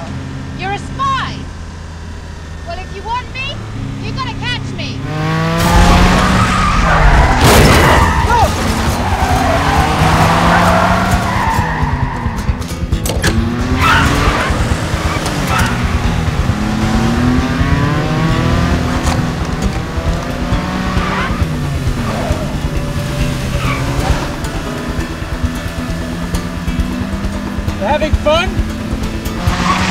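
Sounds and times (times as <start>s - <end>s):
sports car engines revving: 0.0s - 29.9s
tyre squeals: 5.7s - 16.0s, 20.9s - 24.6s.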